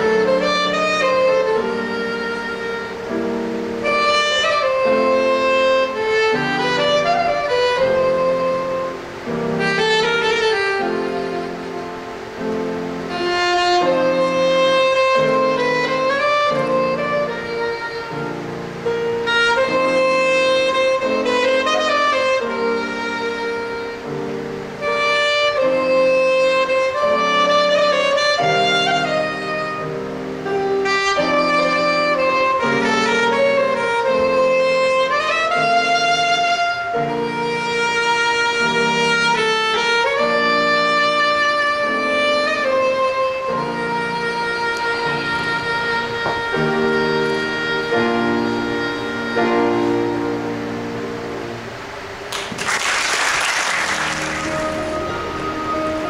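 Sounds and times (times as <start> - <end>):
soprano saxophone melody: 0.0 - 56.0
low chords: 54.2 - 56.0.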